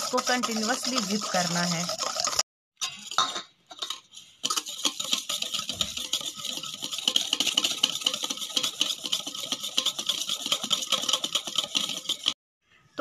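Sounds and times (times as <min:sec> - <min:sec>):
whisk beating in metal bowl: 0:00.0 - 0:12.4.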